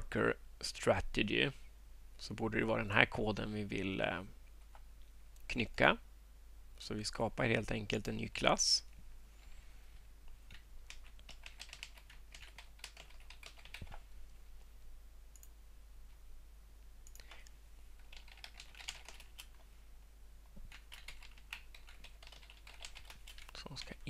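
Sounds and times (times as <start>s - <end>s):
quiet keyboard typing: 10.3s - 14.1s, 17.0s - 19.7s, 20.5s - 24.0s.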